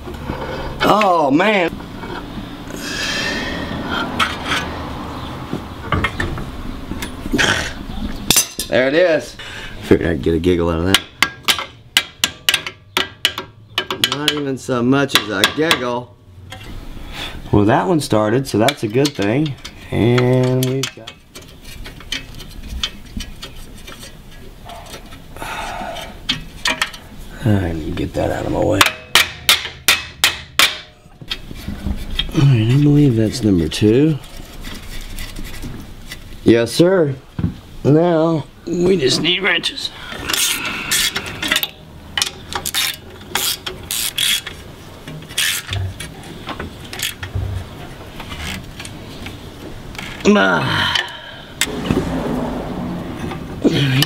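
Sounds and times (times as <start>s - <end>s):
metal parts clicking and tapping: 10.9s - 15.9s, 18.5s - 25.3s, 26.0s - 27.1s, 28.8s - 32.9s, 40.3s - 50.3s
tool knocking against metal parts: 10.9s - 15.9s, 28.8s - 32.4s
ratchet wrench clicking: 40.4s - 44.6s.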